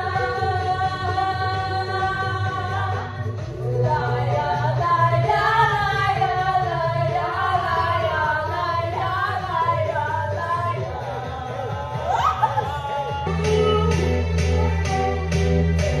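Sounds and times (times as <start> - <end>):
pop dance music: 0.0 - 16.0
women singing along: 0.0 - 16.0.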